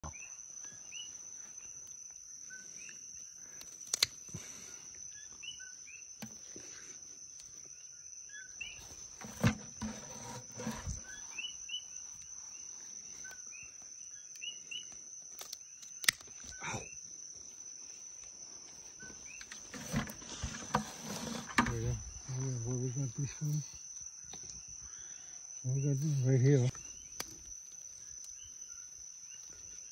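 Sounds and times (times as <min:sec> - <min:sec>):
night insects trilling: 0:00.0 - 0:29.9
pruning shears snapping: 0:03.6 - 0:04.2, 0:15.4 - 0:16.4.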